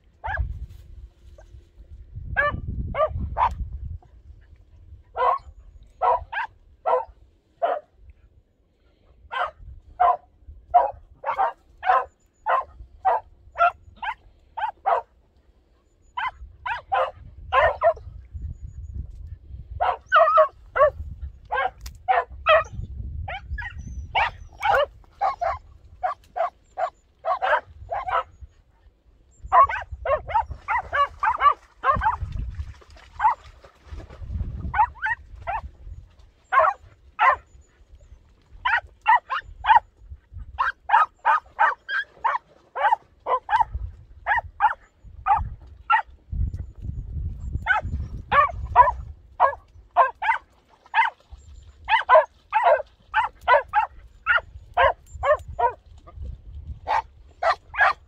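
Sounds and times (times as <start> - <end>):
dog yelping high barks: 5.2 - 7.8, 9.3 - 10.2, 10.8 - 15.1, 16.2 - 18.0, 19.8 - 22.7, 23.3 - 28.3, 29.5 - 32.2, 34.7 - 35.6, 36.5 - 37.4, 38.6 - 39.8, 40.6 - 43.7, 44.3 - 46.1, 47.6 - 51.2, 51.9 - 55.8, 56.9 - 58.0.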